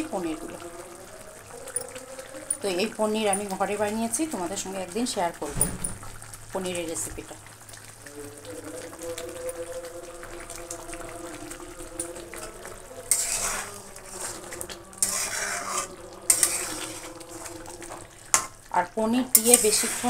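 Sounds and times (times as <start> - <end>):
spatula scraping a pan: 12.4 - 18.6, 19.3 - 20.0.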